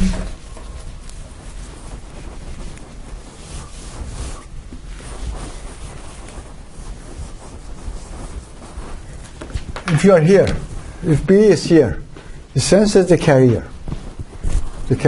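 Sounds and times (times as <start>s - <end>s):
marker rubbing on whiteboard: 0.0s - 10.7s
low room rumble: 0.0s - 15.0s.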